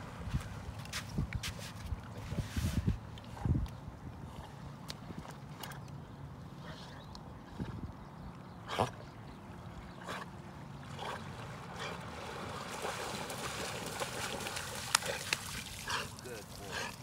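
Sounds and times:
dog splashing through water: 11.2s - 17.0s.

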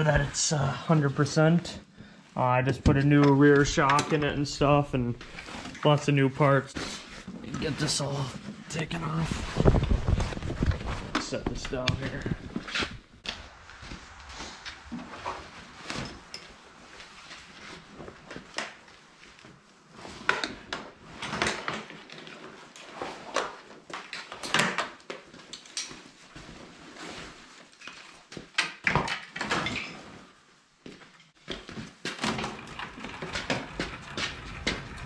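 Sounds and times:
heavy fabric cover rustling: 7.0s - 20.2s.

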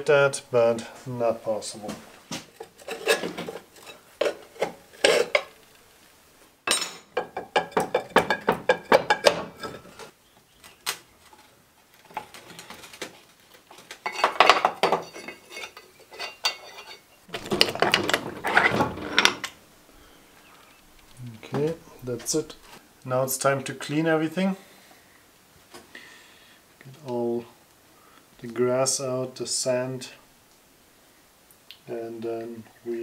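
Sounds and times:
steel parts clattering and scraping: 2.5s - 5.6s, 6.7s - 10.1s, 11.2s - 19.6s.

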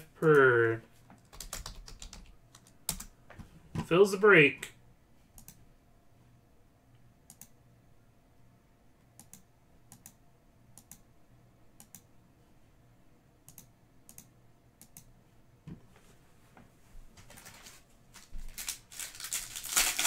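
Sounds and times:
computer mouse clicking: 5.4s - 5.6s, 7.3s - 7.6s, 9.2s - 10.2s, 10.8s - 11.1s, 11.8s - 12.1s, 13.5s - 15.1s.

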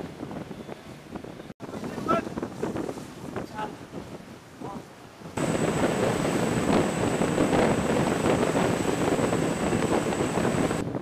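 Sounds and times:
water rushing along hull: 0.0s - 11.0s
wind buffeting microphone: 0.0s - 11.0s
high whine: 5.4s - 10.8s.

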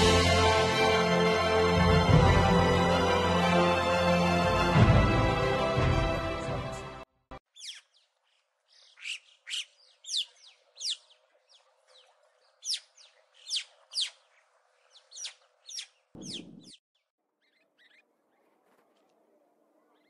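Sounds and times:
birds whistling calls: 7.6s - 7.9s, 8.8s - 11.2s, 12.0s - 14.3s, 14.9s - 16.8s.

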